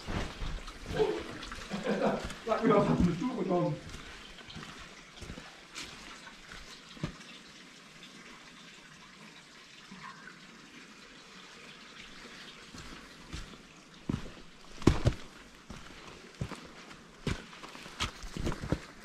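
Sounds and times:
footsteps on path: 0.0s - 7.2s, 12.8s - 19.0s
running water hissing: 0.0s - 8.8s, 9.4s - 19.0s.

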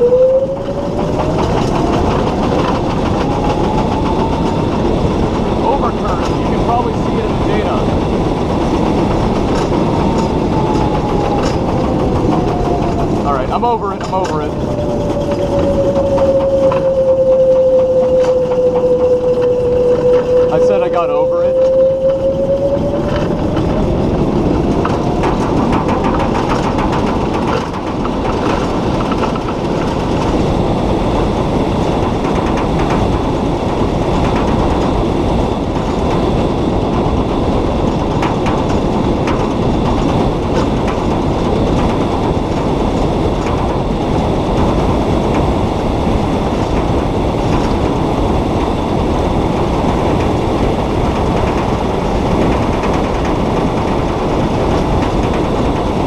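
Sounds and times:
body rattling: 0.0s - 21.0s, 21.6s - 56.0s
faint whine rising in pitch: 0.0s - 26.1s
tyres rumbling on track: 0.0s - 56.0s.

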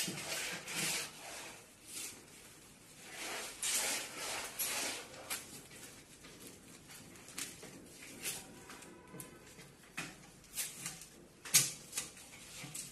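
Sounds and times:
scraping and rubbing wood panels: 0.0s - 9.1s.

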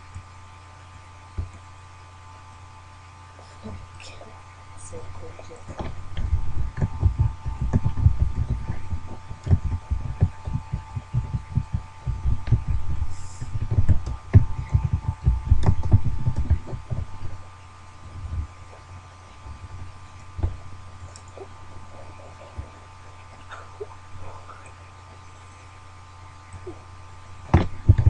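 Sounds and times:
faint high whine: 0.0s - 28.0s
low thumping and rumbling: 4.9s - 25.2s, 26.4s - 28.0s.

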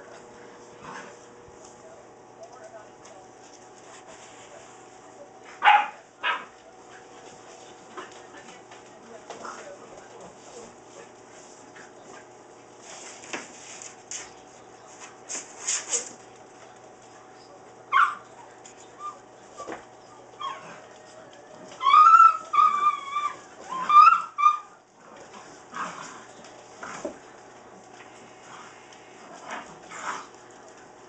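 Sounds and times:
puppy yelp: 17.9s - 18.3s, 21.8s - 24.8s
puppies yipping and whining: 17.9s - 24.8s.

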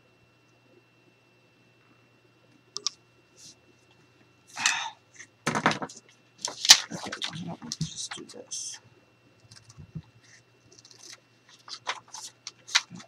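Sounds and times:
envelope material crinkling: 10.7s - 13.0s.

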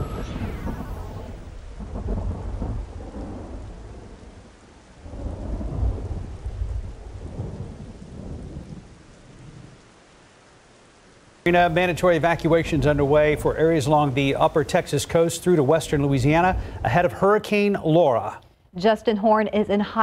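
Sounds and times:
rolling thunder: 0.0s - 9.8s, 11.5s - 17.4s
rain hiss: 0.0s - 18.5s.

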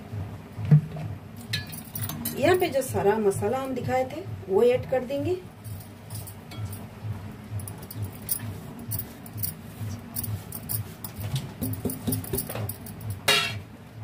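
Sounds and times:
soft background music with beat: 0.0s - 13.7s
metal plate clinking: 11.7s - 13.6s.

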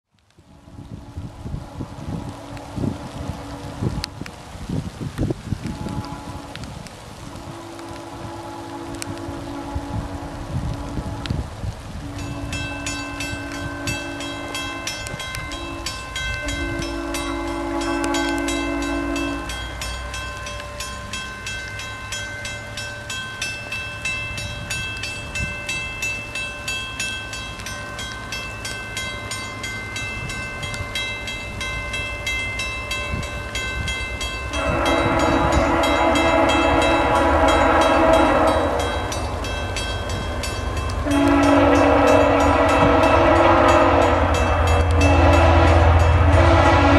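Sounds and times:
train horn blasts: 0.5s - 4.1s, 5.6s - 21.3s, 32.8s - 46.9s
level-crossing bell ringing: 12.2s - 46.4s.

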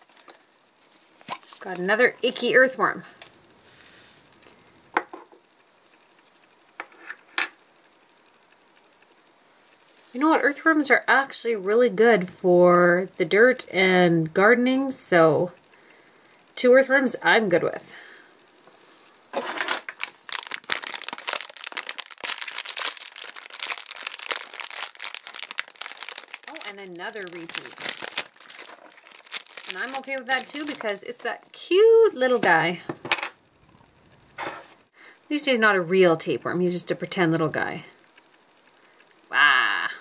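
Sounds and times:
plastic packaging crinkling: 0.0s - 2.5s, 19.3s - 32.5s.

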